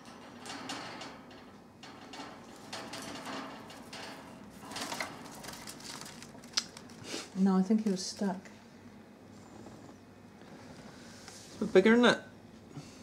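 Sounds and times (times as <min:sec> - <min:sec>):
claws scrabbling on wire cage: 0:00.0 - 0:07.0.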